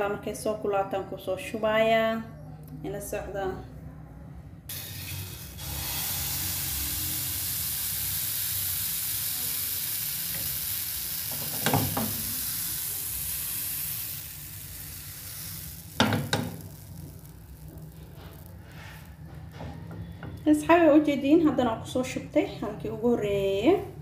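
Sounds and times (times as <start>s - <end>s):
batter sizzling in frying pan: 4.7s - 19.2s.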